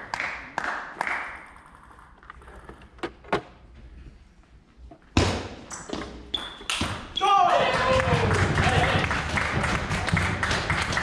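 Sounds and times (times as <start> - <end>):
person clapping: 7.7 - 11.0.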